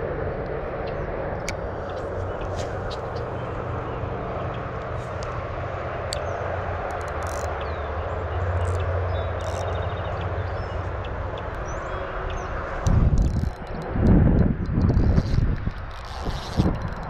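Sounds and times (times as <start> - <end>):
low engine drone: 0.0 - 17.0.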